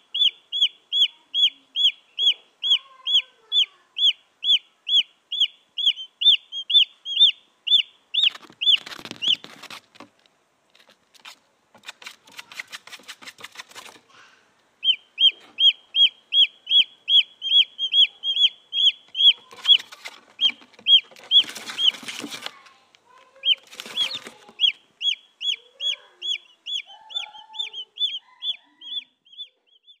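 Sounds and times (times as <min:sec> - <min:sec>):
chicks peeping: 0:00.0 - 0:10.1, 0:11.8 - 0:14.2, 0:14.8 - 0:30.0
scratchy rustling: 0:08.2 - 0:14.1, 0:19.1 - 0:24.8.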